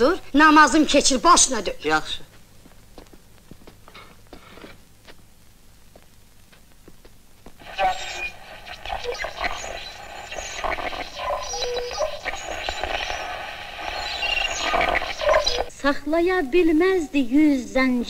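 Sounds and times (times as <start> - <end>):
snatches of radio broadcasts: 5.8 - 15.7
radio static with whistles: 7.6 - 15.7.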